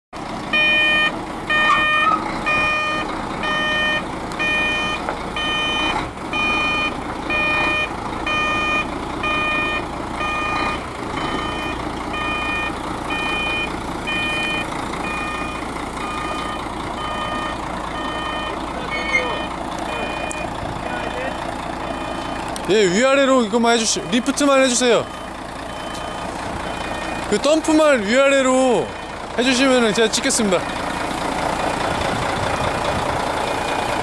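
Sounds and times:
diesel engine running: 0.2s - 34.0s
truck reversing beeper: 0.5s - 34.0s.

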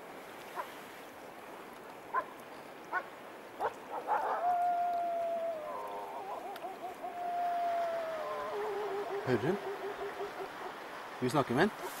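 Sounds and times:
wolf barking yelps: 2.9s - 10.8s, 11.8s - 12.0s
wolf howling: 3.9s - 10.8s.

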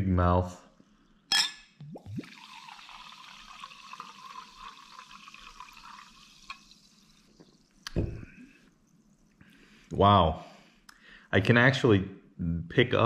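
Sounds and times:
sparkling water pouring into glass: 1.8s - 8.0s.

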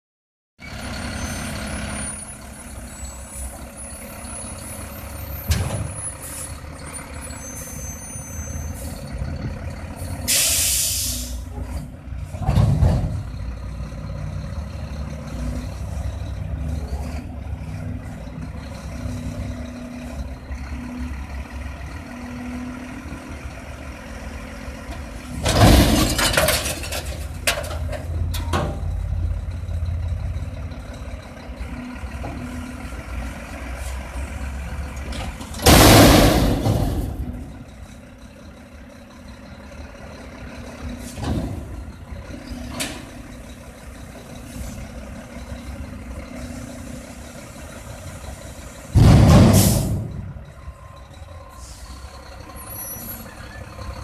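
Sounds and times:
garbage truck diesel engine: 0.6s - 54.0s
air brake hiss: 10.3s - 11.4s.

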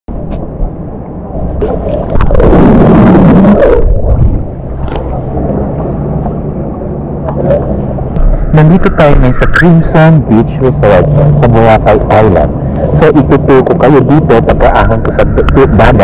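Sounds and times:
water sloshing and gurgling: 0.8s - 9.6s.

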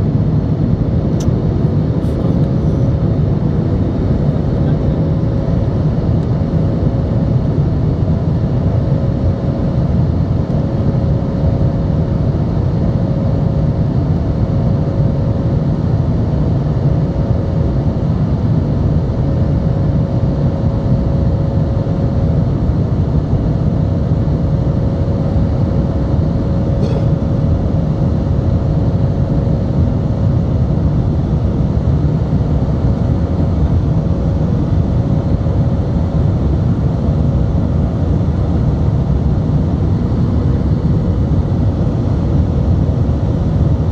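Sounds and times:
jet engine and airflow rush: 0.0s - 43.9s
steady cabin hum: 24.5s - 43.9s.

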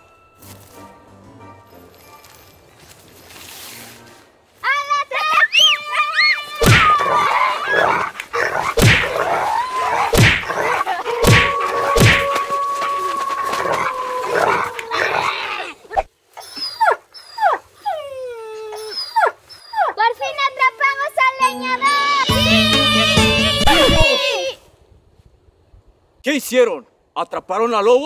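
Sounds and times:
long held howl: 9.1s - 10.1s, 10.9s - 15.7s
dog-like yelps: 16.4s - 20.0s
whimpers: 16.4s - 20.0s.

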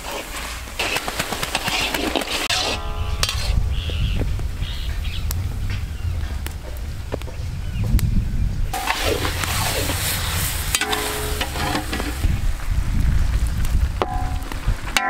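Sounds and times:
metal spatula scraping pan: 0.0s - 3.9s, 8.8s - 12.3s
low rumble: 2.6s - 15.0s
food sizzling and hissing: 8.8s - 12.5s.

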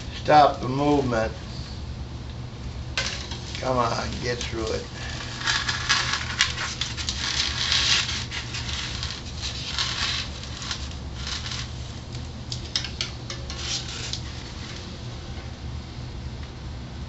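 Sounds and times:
steady low hum: 0.0s - 17.0s
foam block scraping on hot wire: 3.0s - 15.0s.

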